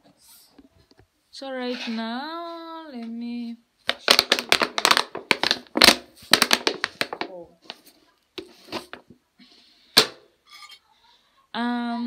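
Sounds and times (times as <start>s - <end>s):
person speaking: 7.0s - 8.1s.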